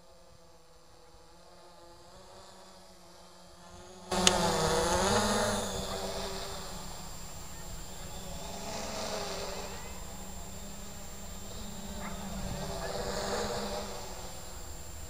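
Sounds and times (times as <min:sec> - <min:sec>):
drone propellers buzzing: 0:00.0 - 0:15.0
sharp click: 0:04.1 - 0:04.4.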